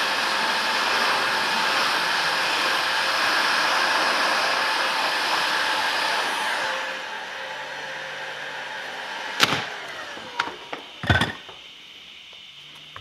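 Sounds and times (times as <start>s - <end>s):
heat gun blowing air: 0.0s - 11.3s.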